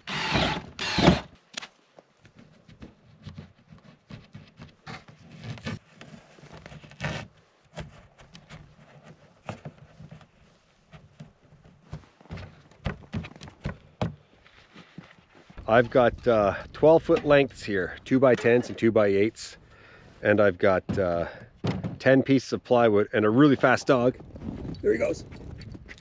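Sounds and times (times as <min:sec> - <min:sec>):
rope knocking and rustling on plastic: 0:02.1 - 0:15.6.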